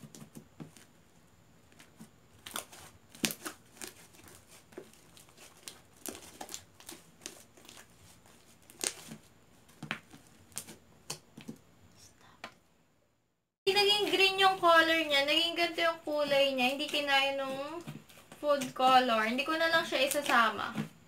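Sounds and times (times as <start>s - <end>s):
slime popping and crackling: 2.4s - 7.9s.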